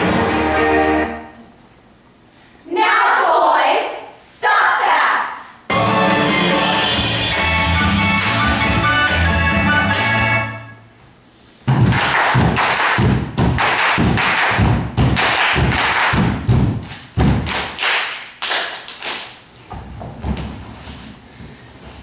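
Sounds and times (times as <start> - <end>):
hand claps: 11.7 - 19.4.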